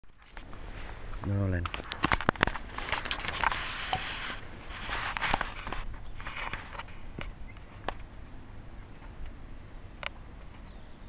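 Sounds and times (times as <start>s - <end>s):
rustling handling noise: 0.1s - 7.9s.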